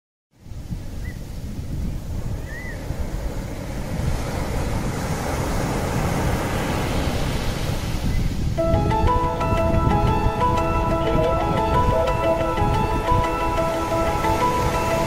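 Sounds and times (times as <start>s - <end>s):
rushing wind and sea: 0.3s - 15.0s.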